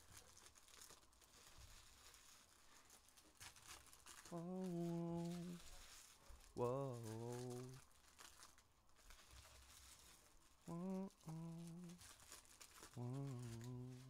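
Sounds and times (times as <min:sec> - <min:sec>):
wrappers and cards rustling: 0:00.0 - 0:14.0
person humming one note: 0:04.3 - 0:05.6, 0:06.6 - 0:07.8, 0:10.7 - 0:12.0, 0:13.0 - 0:14.0.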